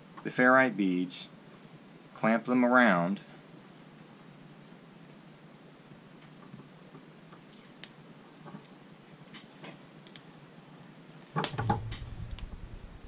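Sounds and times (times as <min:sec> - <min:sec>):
low rumble: 0:11.7 - 0:13.0.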